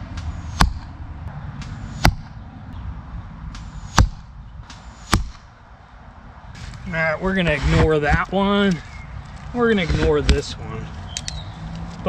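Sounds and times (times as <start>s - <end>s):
arrows hitting target: 0.1s - 0.9s, 1.6s - 2.4s, 3.5s - 5.5s, 7.5s - 8.3s, 9.8s - 10.5s.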